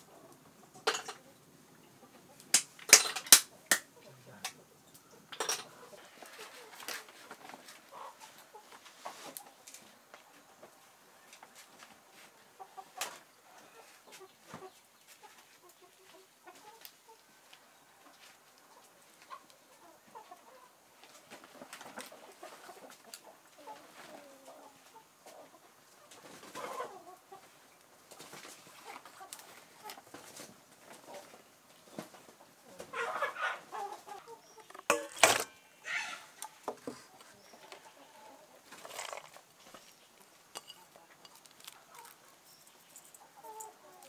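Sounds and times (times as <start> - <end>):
chickens clucking: 0.0 - 44.0
wood fire crackling: 2.4 - 5.4, 38.7 - 43.7
leaf rustling: 38.5 - 44.0.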